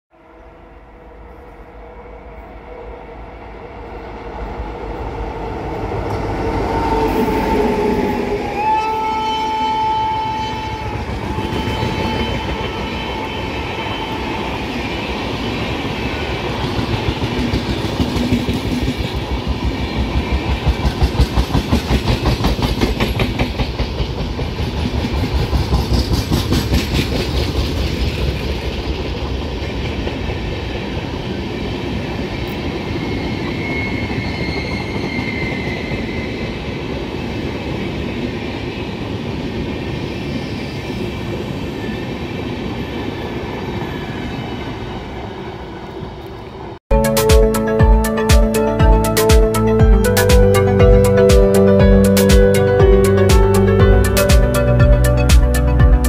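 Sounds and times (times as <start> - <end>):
train rumble: 1.1 - 33.1
train wheels clicking over rail joints: 16.6 - 30.6.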